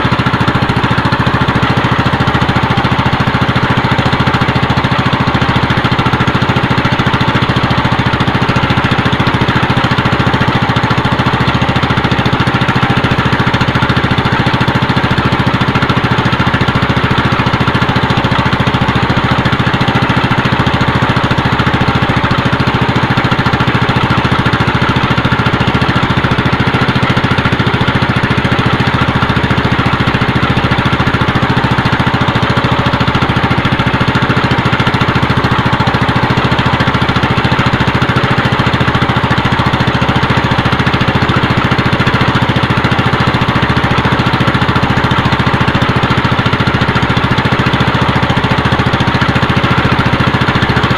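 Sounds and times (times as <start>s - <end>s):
small boat engine droning: 0.0s - 50.9s.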